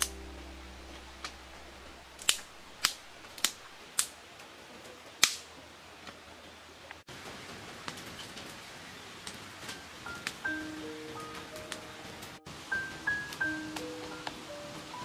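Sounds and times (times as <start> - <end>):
dry sticks snapping: 2.1 - 4.2, 5.2 - 5.5.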